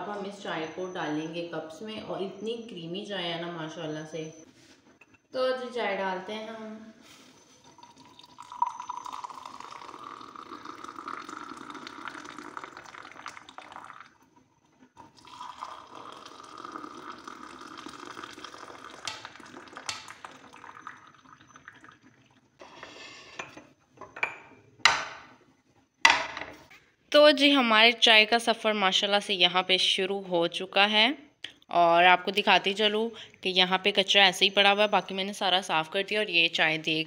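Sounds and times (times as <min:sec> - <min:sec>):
tea pouring into glass: 0:07.5 - 0:23.7.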